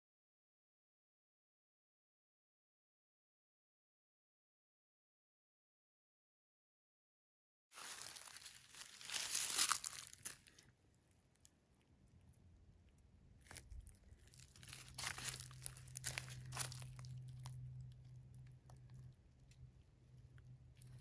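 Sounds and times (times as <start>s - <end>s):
footsteps crunching through dry leaves: 7.8s - 10.6s, 14.2s - 17.1s.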